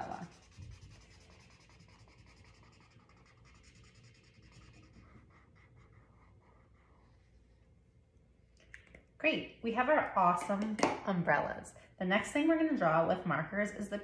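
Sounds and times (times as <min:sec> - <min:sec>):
marker scratching on paper: 0:00.0 - 0:07.4.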